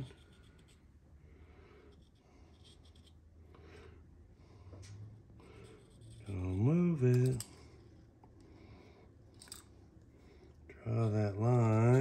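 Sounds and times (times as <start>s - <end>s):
paint pen scratching: 0.0s - 0.9s, 1.9s - 3.2s, 5.4s - 6.7s.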